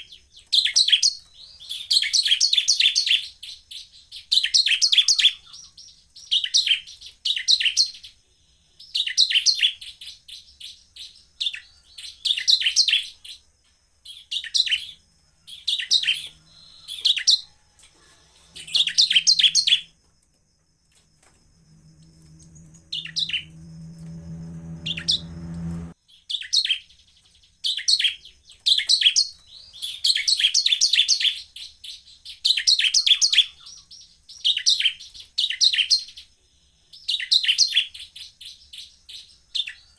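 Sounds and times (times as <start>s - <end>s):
bird chirping song: 0.0s - 39.9s
low hum: 21.2s - 26.0s.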